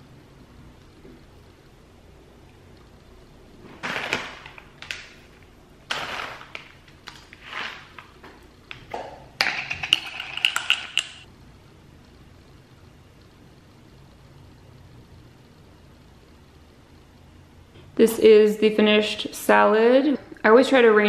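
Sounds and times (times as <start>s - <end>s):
glass jar clinking: 9.4s - 11.2s.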